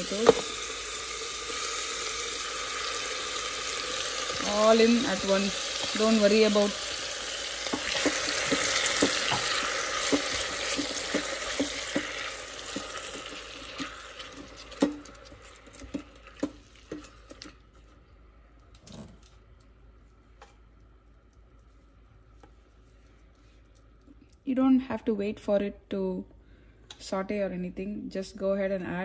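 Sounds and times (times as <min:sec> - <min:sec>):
vegetables sizzling in hot oil: 0:00.0 - 0:17.5.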